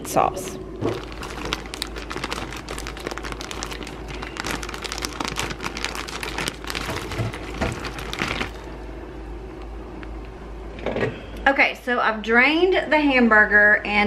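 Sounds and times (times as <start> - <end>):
plastic bag crinkling: 0.8 - 8.9.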